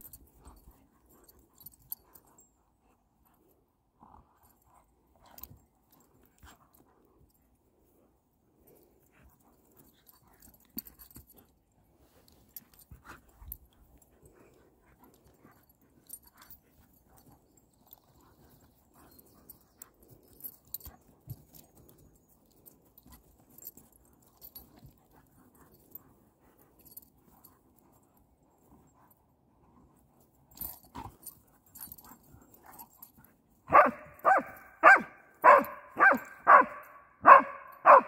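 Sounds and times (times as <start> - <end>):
dogs scuffling and mouthing: 0.0 - 36.4.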